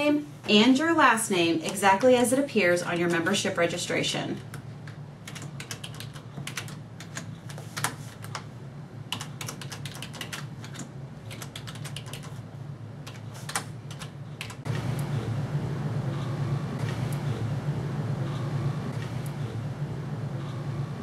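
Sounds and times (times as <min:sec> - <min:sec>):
steady low hum: 0:00.0 - 0:21.0
typing on computer keyboard: 0:05.3 - 0:08.4, 0:09.1 - 0:12.4, 0:13.0 - 0:14.6.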